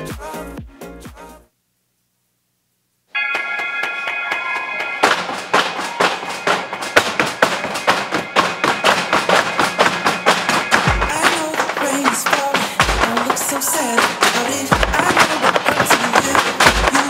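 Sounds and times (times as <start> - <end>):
loud pop song: 0.0 - 1.4, 4.4 - 17.0
tap shoes on wooden stage: 4.3 - 17.0.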